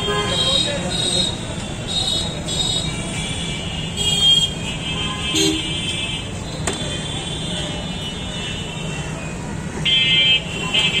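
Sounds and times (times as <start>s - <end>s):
traffic rumble: 0.0s - 11.0s
vehicle horn toots: 2.7s - 7.5s.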